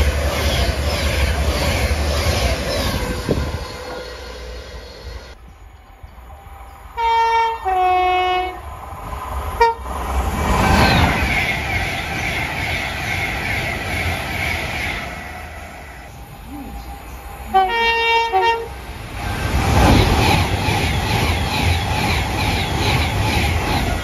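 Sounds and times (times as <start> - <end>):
train passing at speed: 0.0 - 24.0
train horn short high toot: 7.0 - 8.6, 9.6 - 9.8, 17.5 - 18.8
train two-tone horn: 7.0 - 8.6, 9.6 - 9.9, 17.5 - 18.8.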